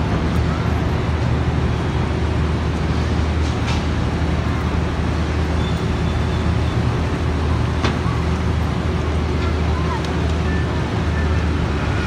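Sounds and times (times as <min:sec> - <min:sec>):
city street traffic rumble: 0:00.0 - 0:12.0.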